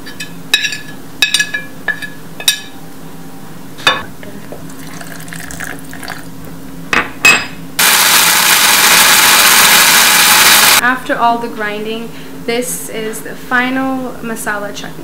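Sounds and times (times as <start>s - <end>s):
electric mixer grinder running: 7.8s - 10.8s.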